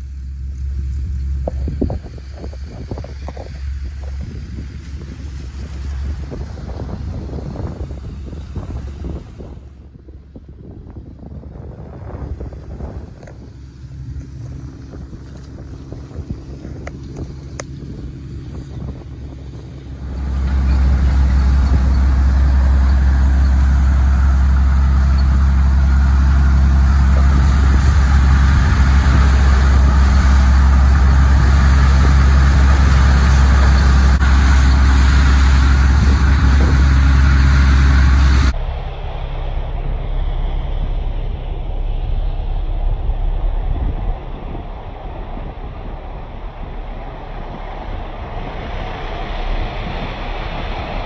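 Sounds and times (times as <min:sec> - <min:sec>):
threshing machine motor drone: 0:00.0 - 0:51.0
rattle of stalks in thresher: 0:12.6 - 0:38.5.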